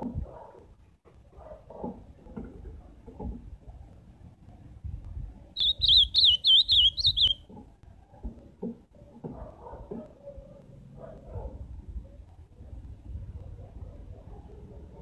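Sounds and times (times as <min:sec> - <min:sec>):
bird singing warbled phrase: 0:05.6 - 0:07.4.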